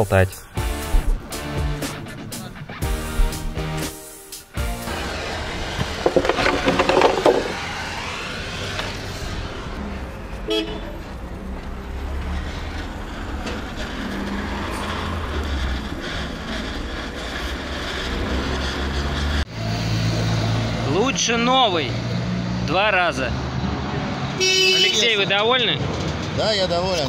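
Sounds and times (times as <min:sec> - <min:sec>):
road traffic: 0:00.0 - 0:27.0
car horn toot: 0:10.5 - 0:10.9, 0:24.4 - 0:25.2.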